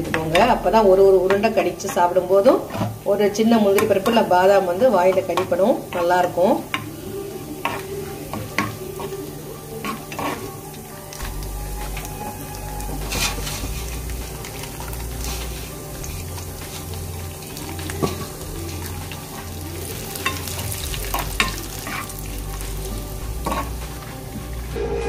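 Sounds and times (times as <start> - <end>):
nuts sizzling in oil: 0.0 - 24.8
metal spoon stirring: 5.1 - 24.2.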